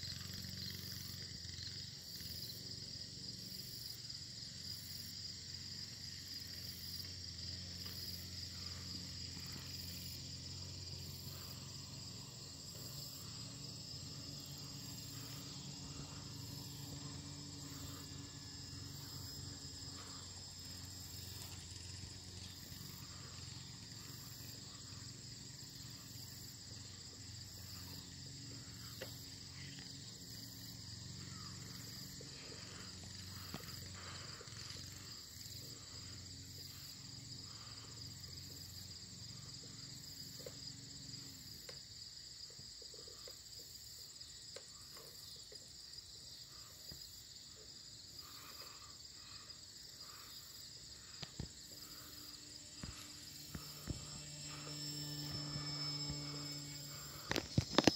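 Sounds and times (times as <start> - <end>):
crickets chirping: 0.0 - 57.9
faint low hum: 48.2 - 57.9.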